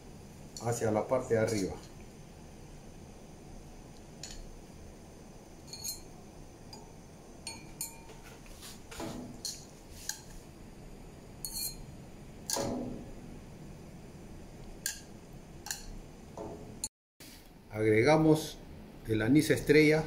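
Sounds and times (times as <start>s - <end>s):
metal tongs clinking on pots: 1.4s - 2.0s, 4.2s - 4.5s, 5.6s - 6.1s, 6.7s - 8.2s, 9.4s - 10.3s, 11.4s - 11.8s, 14.8s - 16.0s
tongs clattering: 4.2s - 4.4s, 5.7s - 6.1s, 9.4s - 10.4s, 11.4s - 11.8s, 14.8s - 16.0s.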